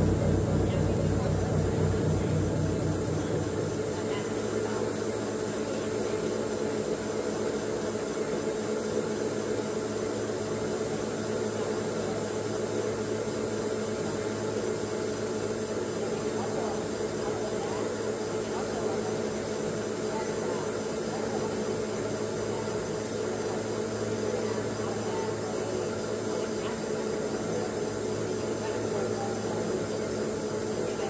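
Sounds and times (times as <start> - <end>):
pipe threading machine humming: 0.0 - 8.2.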